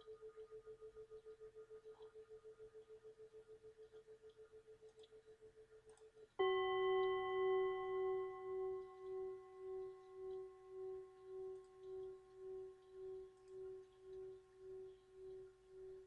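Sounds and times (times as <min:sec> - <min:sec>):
high singing bowl tail: 0:06.4 - 0:16.0
singing bowl ringing: 0:06.4 - 0:16.0.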